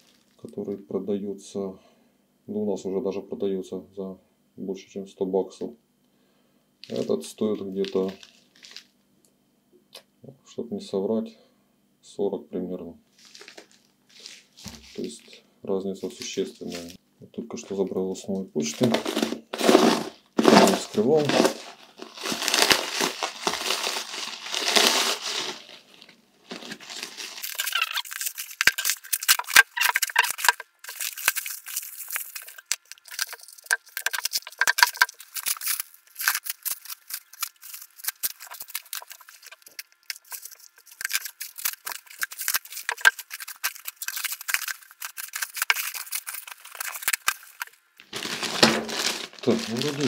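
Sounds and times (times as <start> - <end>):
plastic wrapping tearing: 6.8 - 8.9, 13.2 - 15.3, 18.7 - 50.0.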